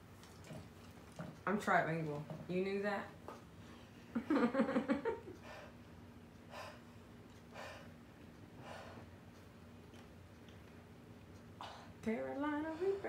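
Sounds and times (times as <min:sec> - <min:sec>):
person breathing hard: 0:06.5 - 0:08.0, 0:08.6 - 0:09.1.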